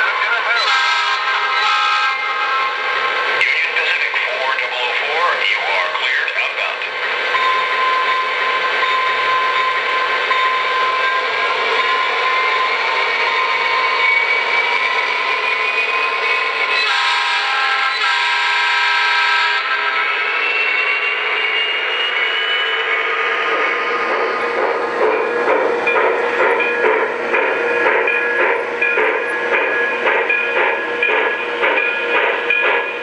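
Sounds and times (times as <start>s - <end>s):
locomotive horn: 0.4s - 2.9s, 16.8s - 20.2s.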